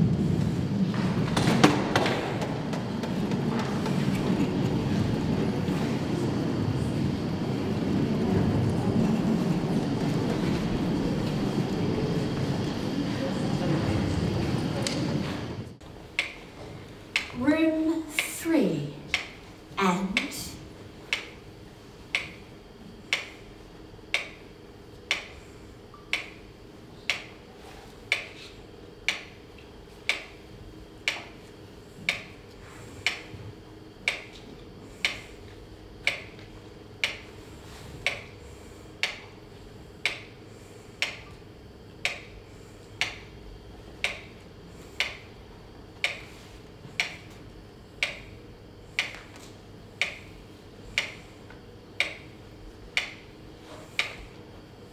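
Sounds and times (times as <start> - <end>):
low steady hum: 0.0 - 54.9
steady ticking clicks: 15.8 - 33.4, 34.0 - 54.9.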